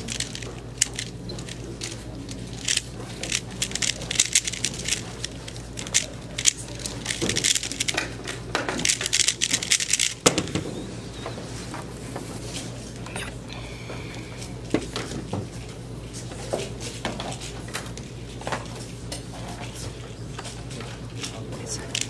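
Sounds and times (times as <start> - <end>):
puzzle cube plastic clicking: 0.0 - 10.3.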